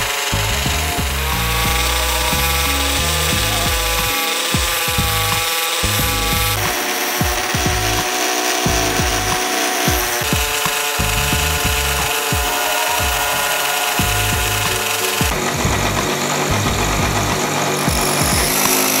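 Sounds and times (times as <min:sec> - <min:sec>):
background music: 0:00.0 - 0:19.0
bench grinder grinding blade: 0:00.0 - 0:19.0.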